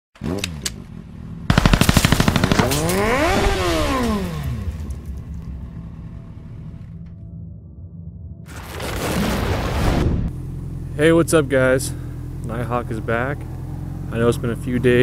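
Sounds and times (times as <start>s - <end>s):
automatic gunfire burst: 1.5s - 3.6s
low rumble: 4.4s - 15.0s.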